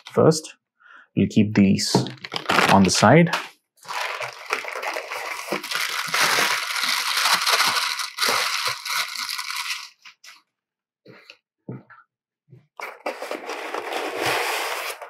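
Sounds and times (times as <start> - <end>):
plastic bag crinkling: 2.0 - 3.0, 3.8 - 10.2.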